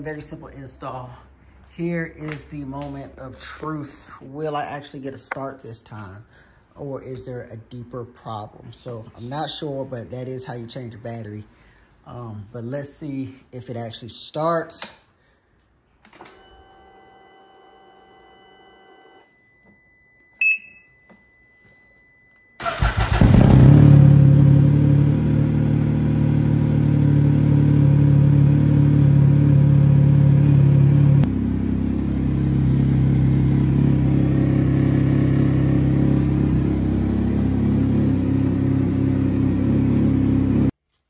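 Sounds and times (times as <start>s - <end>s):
short beep: 19.2s - 22.6s
engine cranking and idling: 22.6s - 24.2s.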